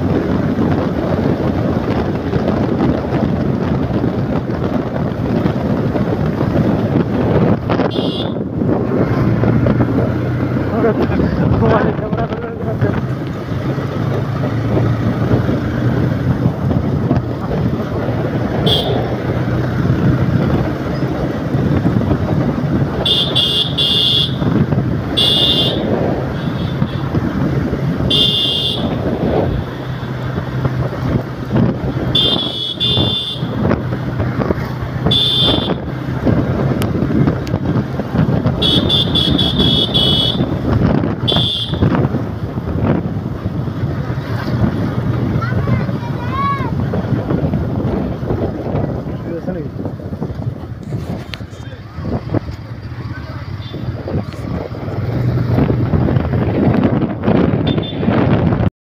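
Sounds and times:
vehicle engine and road rumble: 0.0 - 58.7
wind: 0.0 - 58.7
high-pitched horn beeping: 7.9 - 8.5, 18.6 - 19.1, 23.0 - 24.4, 25.2 - 27.0, 28.1 - 29.0, 32.1 - 33.6, 35.1 - 35.9, 38.6 - 40.6, 41.2 - 41.9.

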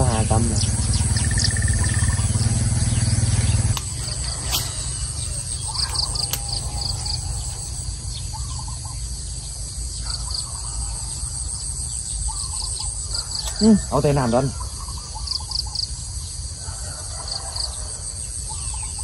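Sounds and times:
low rumble: 0.0 - 13.3
low hum: 0.0 - 15.0
short chirping calls: 0.0 - 16.0
insects trilling: 0.0 - 19.0.

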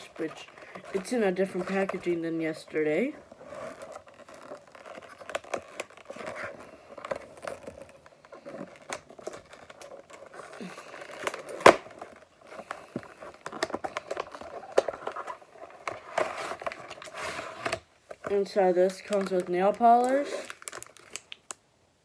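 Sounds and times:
cardboard box handled and opened: 0.0 - 21.1.

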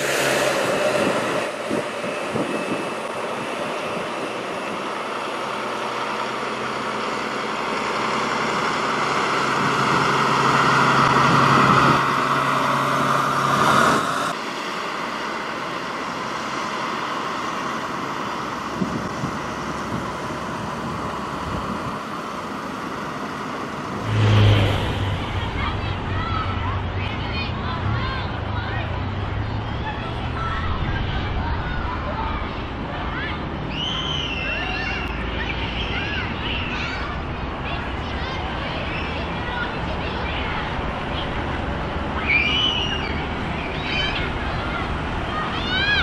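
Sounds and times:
diesel truck engine passing: 0.0 - 46.0
road noise: 0.0 - 46.0.

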